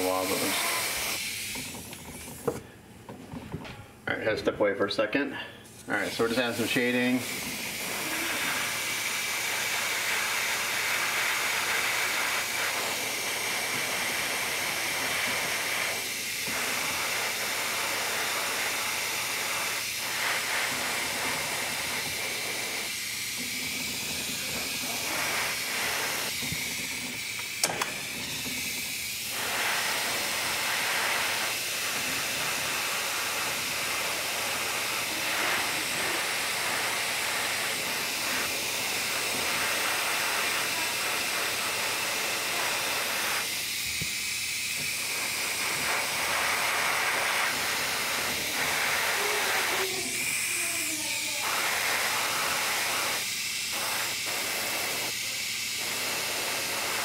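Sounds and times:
airbrush hissing: 0:00.0 - 0:02.7, 0:05.6 - 0:57.0.

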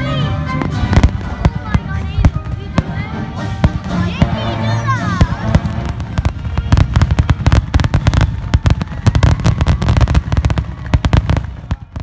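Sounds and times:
fireworks bangs and crackles: 0:00.0 - 0:12.0.

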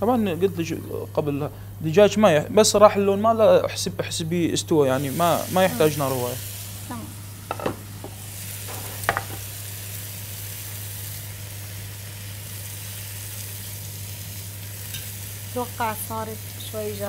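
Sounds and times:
chicken sizzling in a pan: 0:04.8 - 0:17.0
metal tongs clicking on pan: 0:14.9 - 0:15.1.

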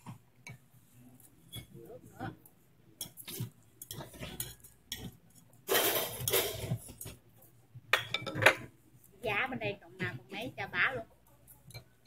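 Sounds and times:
chopsticks and spoons clicking bowls: 0:03.0 - 0:07.1.

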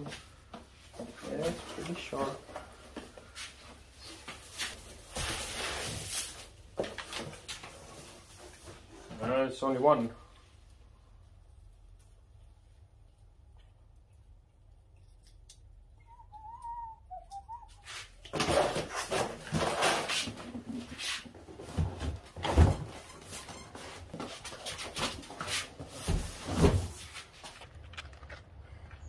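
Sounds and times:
cardboard boxes dragging and scraping: 0:18.4 - 0:22.4, 0:23.2 - 0:27.6
heavy thumps of boxes set down: 0:21.6 - 0:23.1.

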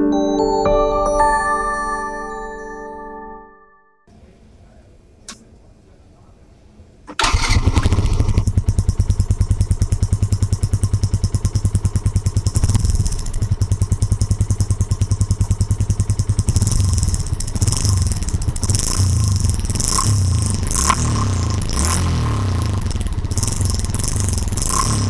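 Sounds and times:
motorcycle engine idling: 0:07.2 - 0:25.0.

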